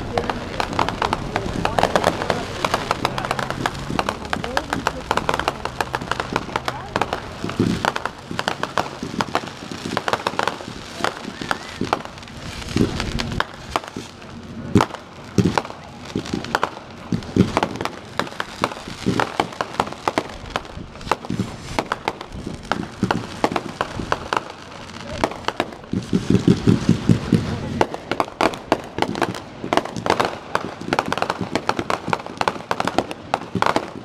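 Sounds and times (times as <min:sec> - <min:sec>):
deep firework thumps: 0:00.0 - 0:34.0
fireworks crackling and popping: 0:00.0 - 0:34.0.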